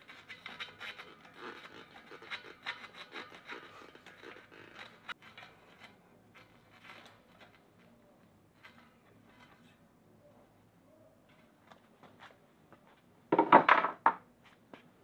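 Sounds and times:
hand tool scraping bike cassette: 0.0s - 9.8s.

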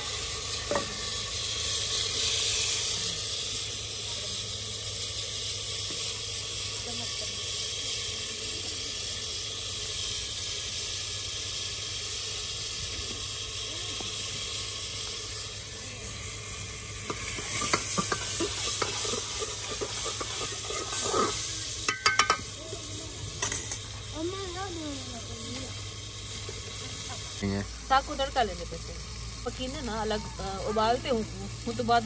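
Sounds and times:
food sizzling in a pot: 0.0s - 32.0s
utensil scraping a pot: 17.1s - 22.5s
utensil knocking against a pot: 21.9s - 22.4s.

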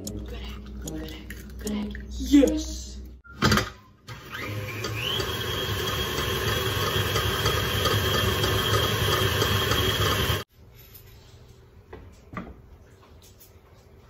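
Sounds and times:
stand mixer motor whining: 4.1s - 10.4s.

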